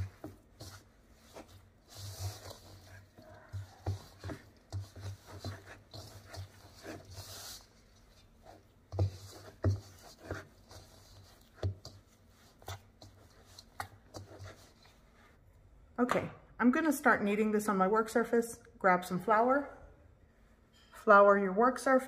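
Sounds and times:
dough squishing and rubbing: 0.0s - 15.5s.

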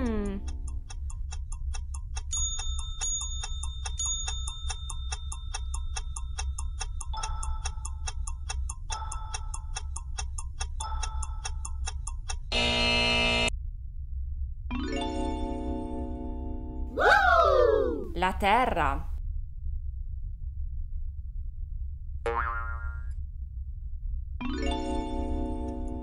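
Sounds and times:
clock ticking: 0.0s - 13.2s
chime: 2.3s - 5.5s
loud buzzer tone: 12.5s - 13.5s.

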